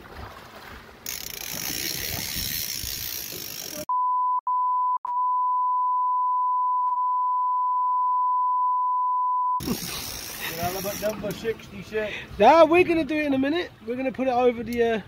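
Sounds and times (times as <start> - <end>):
sea noise: 0.0 - 3.9, 9.6 - 12.7
censor bleep tone: 3.9 - 9.6.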